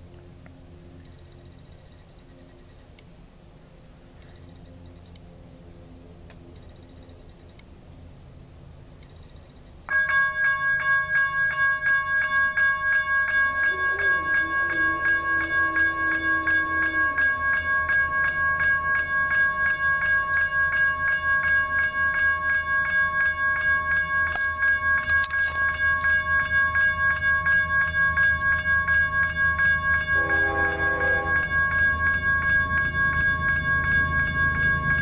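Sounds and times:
diesel locomotive rumble: 7.5s - 35.0s
crossing warning bell ringing: 9.4s - 35.0s
locomotive air horn blast: 13.7s - 17.4s, 30.2s - 31.6s.

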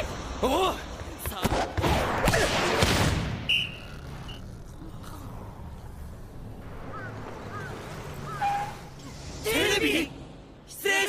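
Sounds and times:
referee's whistle: 3.4s - 4.4s.

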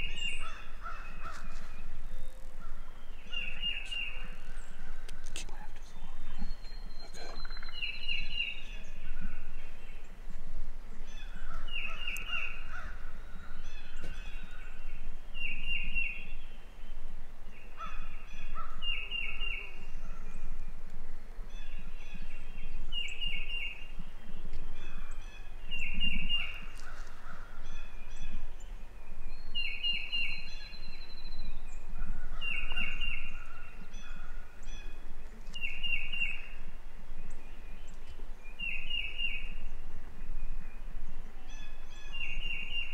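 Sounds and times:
wild turkey calls: 0.0s - 10.1s, 11.0s - 14.9s, 17.7s - 20.6s, 24.7s - 28.5s, 31.9s - 36.8s
steady low rumble: 0.0s - 29.6s.

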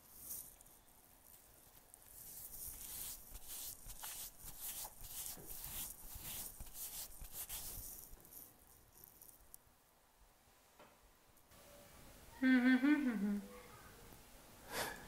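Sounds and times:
fingers rubbing tape over stubble: 2.1s - 9.4s.

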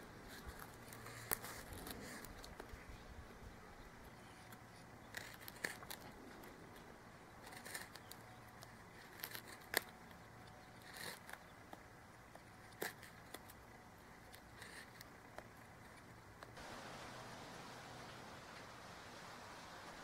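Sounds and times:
knife carving wood: 0.3s - 2.7s, 4.1s - 16.5s.

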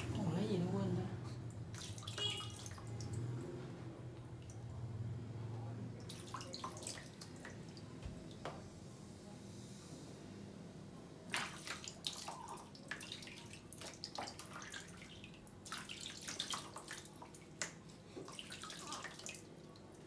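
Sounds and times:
water splashing in bathtub: 1.5s - 4.7s, 5.9s - 8.5s, 11.2s - 20.0s.

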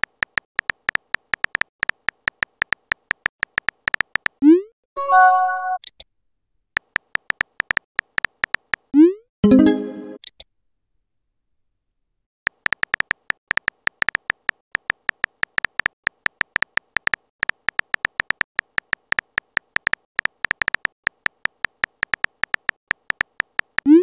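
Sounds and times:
typing ticks: 0.0s - 4.4s, 6.8s - 8.9s, 12.5s - 24.0s.

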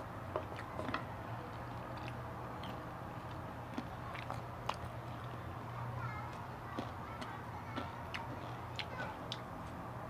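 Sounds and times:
steady low hum: 0.0s - 10.0s
person chewing: 0.4s - 5.4s, 6.7s - 9.5s.

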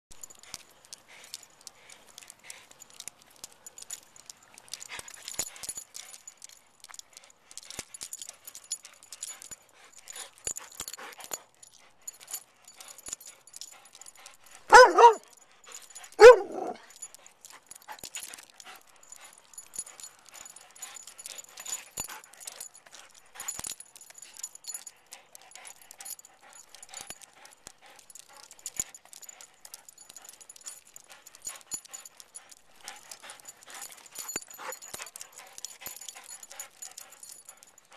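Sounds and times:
dog tags jingling and clicking: 0.1s - 37.9s
dog barking: 14.7s - 15.2s, 16.2s - 16.8s.

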